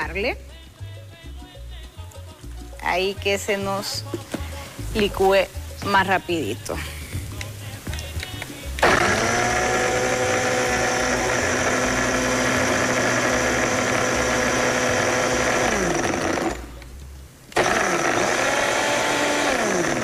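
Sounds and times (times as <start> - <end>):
blender crushing ice: 8.8 - 16.7, 17.6 - 20.0.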